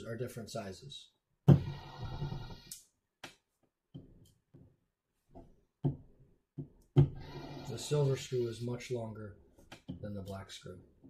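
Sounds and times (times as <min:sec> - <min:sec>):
electric screwdriver whine: 0:07.2 - 0:07.9.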